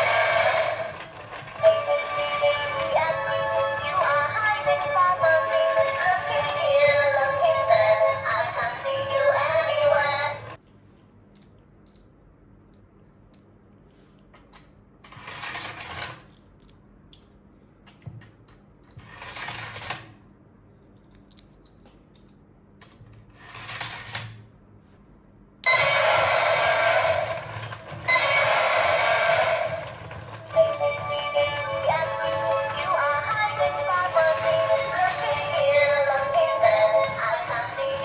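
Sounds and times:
toy electronic sound effects: 0.0s - 10.5s, 25.6s - 38.0s
toy mechanism running: 0.0s - 10.6s, 15.0s - 16.4s, 19.0s - 20.2s, 23.3s - 24.4s, 25.6s - 38.0s.

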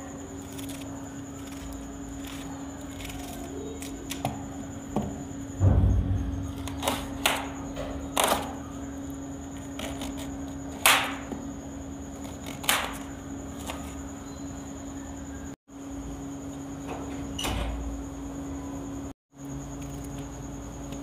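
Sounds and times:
steady hum: 0.0s - 21.0s
knife cutting cabbage: 0.3s - 4.5s, 9.6s - 11.4s, 12.1s - 14.0s.

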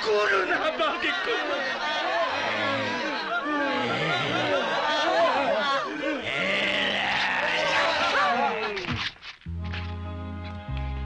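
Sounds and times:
background music with bass and chords: 9.5s - 11.0s.

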